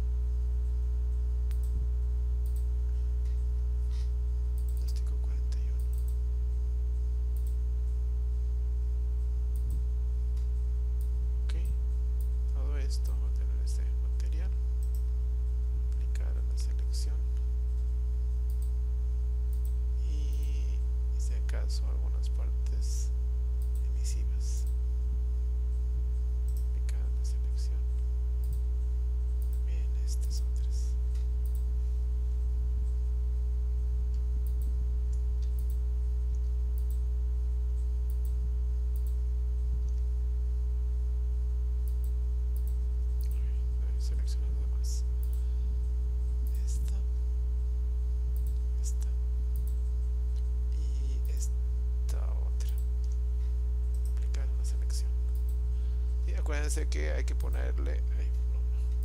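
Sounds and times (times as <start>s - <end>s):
electrical mains hum: 0.0s - 59.0s
computer mouse clicks: 1.5s - 1.8s, 2.4s - 3.4s, 4.6s - 5.0s, 5.6s - 6.2s, 7.4s - 7.6s, 9.5s - 9.8s, 14.8s - 15.2s, 18.5s - 18.8s, 19.5s - 20.6s, 26.5s - 26.7s, 29.3s - 31.7s, 34.2s - 35.8s, 36.4s - 37.0s, 38.0s - 39.2s, 41.8s - 43.4s, 48.4s - 50.5s.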